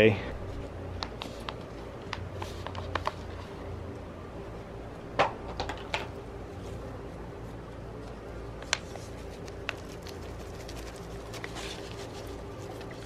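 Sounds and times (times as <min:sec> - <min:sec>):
low steady hum: 0:00.0 - 0:13.0
hands tapping and rustling soil: 0:00.9 - 0:03.4, 0:07.5 - 0:13.0.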